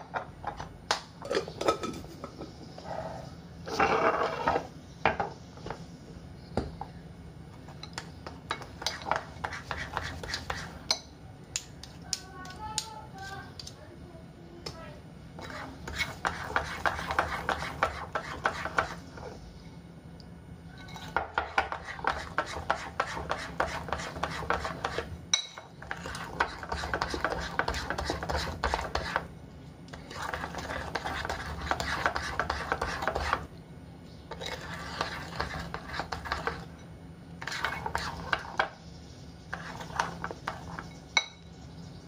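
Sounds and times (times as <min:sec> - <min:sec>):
spoon scraping ceramic bowl: 0:01.2 - 0:04.7, 0:07.8 - 0:11.1, 0:15.4 - 0:19.4, 0:20.7 - 0:29.3, 0:29.9 - 0:33.5, 0:34.3 - 0:38.8, 0:39.5 - 0:41.5.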